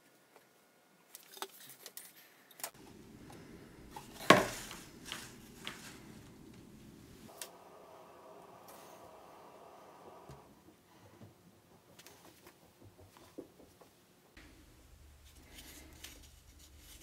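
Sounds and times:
cardboard box set down: 3.9 - 6.0.

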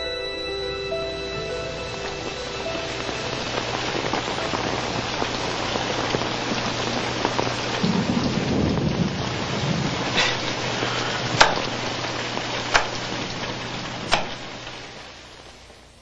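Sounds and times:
heavy rain: 0.0 - 16.0
low rumble of thunder: 2.9 - 11.4.

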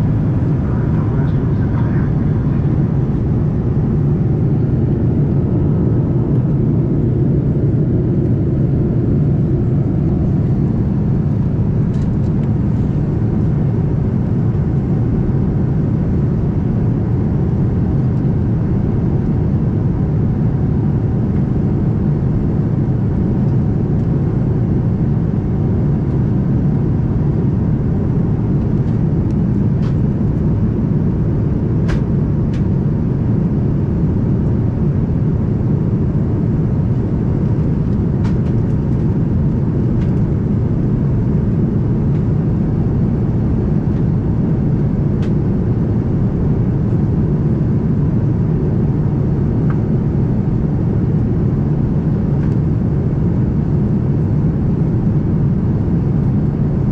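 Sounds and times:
airplane cabin engine rush: 0.0 - 56.9.

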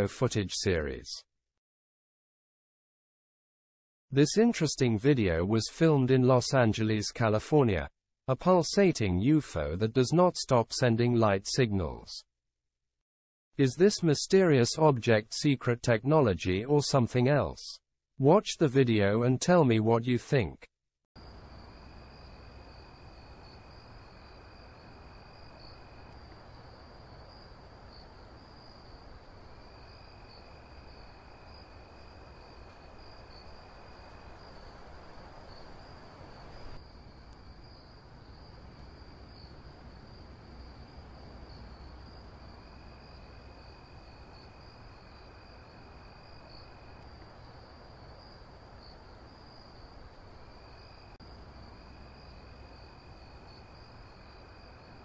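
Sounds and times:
crickets chirping: 21.2 - 55.0
low rumble and hiss: 21.2 - 55.0.

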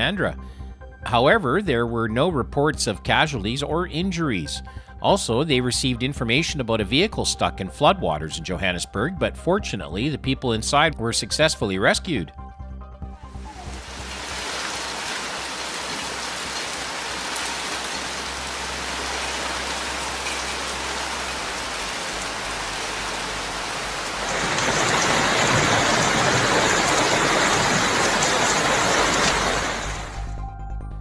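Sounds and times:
heavy rain: 13.3 - 30.3
fast-flowing floodwater rushing: 13.6 - 30.1.

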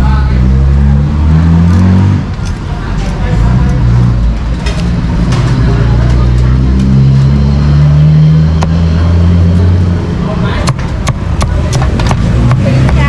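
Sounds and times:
vehicle engine speeding up: 0.0 - 13.0
sharp knocks: 10.6 - 13.0.

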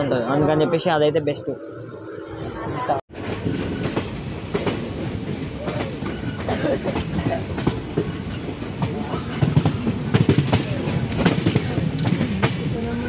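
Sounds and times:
train coach rumble: 2.5 - 13.0
train wheels clacking and rattling: 3.1 - 13.0.

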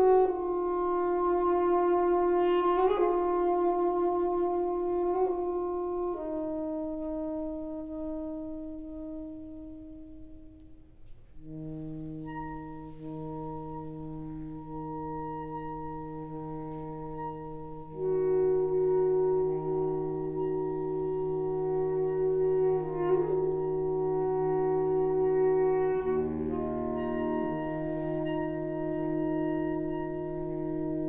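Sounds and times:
saxophone quartet playing chords: 0.0 - 31.0.

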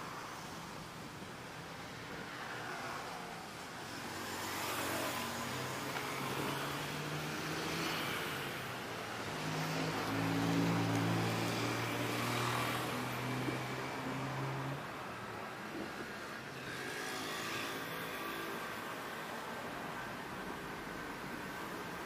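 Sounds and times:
cars passing: 1.9 - 22.0
motorbikes passing: 4.0 - 14.9, 16.6 - 18.8.

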